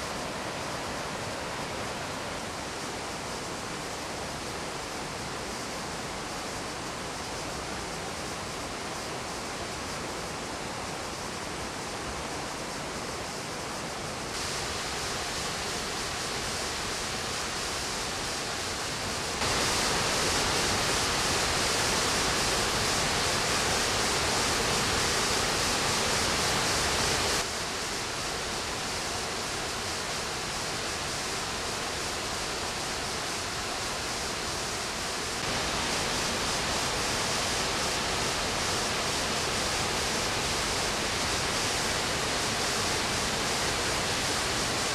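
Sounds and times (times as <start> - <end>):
waterfall pouring over rocks: 13.8 - 44.9.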